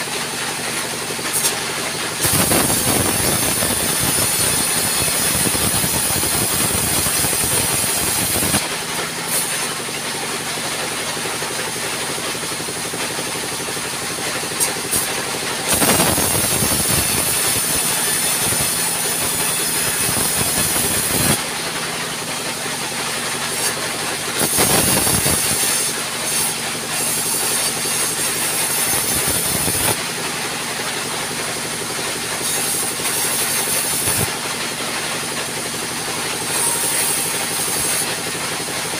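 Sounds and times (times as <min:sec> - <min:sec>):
band saw cutting wood: 0:00.0 - 0:38.9.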